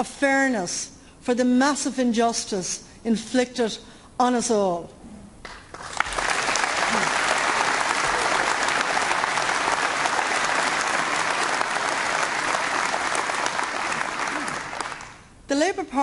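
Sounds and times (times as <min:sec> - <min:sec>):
audience applauding: 0:05.5 - 0:15.3.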